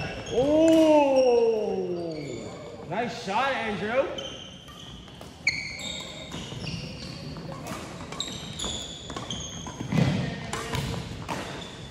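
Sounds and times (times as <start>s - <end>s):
sneakers squeaking: 0.0s - 11.9s
rackets hitting shuttlecocks: 0.5s - 0.9s, 7.3s - 11.9s.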